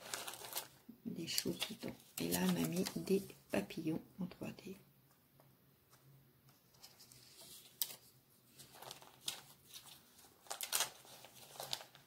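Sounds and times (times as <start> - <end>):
paper rustling: 0.0 - 3.4, 5.9 - 12.0.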